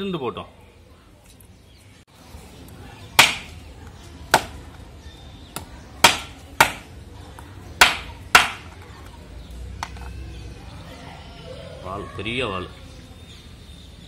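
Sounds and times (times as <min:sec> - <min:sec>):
knife chopping on wooden board: 0:05.6 - 0:06.9.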